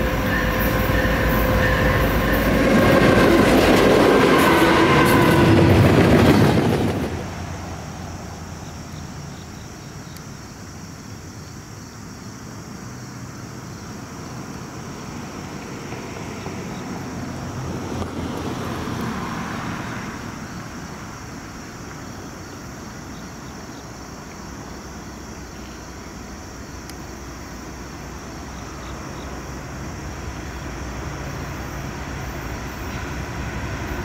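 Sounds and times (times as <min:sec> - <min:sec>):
locomotive rumble: 0:00.0 - 0:10.0, 0:25.2 - 0:34.0.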